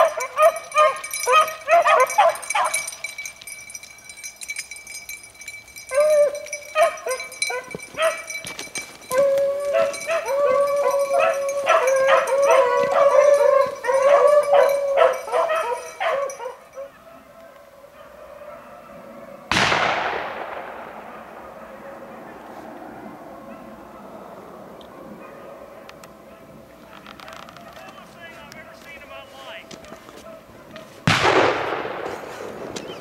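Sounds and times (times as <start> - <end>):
hounds baying: 0.0 - 19.5, 21.5 - 31.0.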